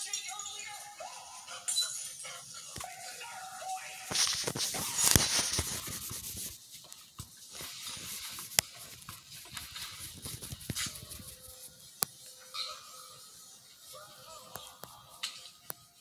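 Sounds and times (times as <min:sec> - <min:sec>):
toy figures rubbing and rustling: 0:01.8 - 0:12.4.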